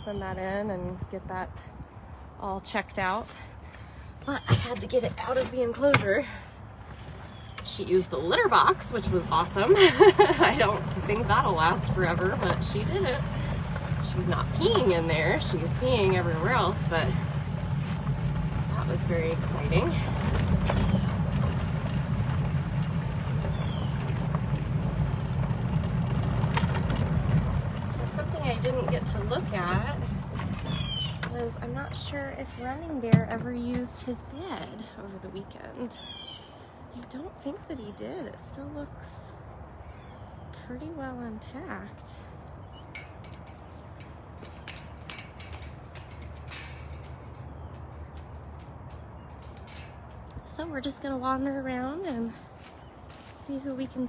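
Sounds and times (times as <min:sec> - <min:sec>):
steady low rumble: 0:00.0 - 0:54.0
vehicle driving on dirt road: 0:00.0 - 0:54.0
light rattles: 0:04.4 - 0:34.9, 0:42.1 - 0:54.0
footsteps crunching on dry leaves: 0:52.0 - 0:53.8.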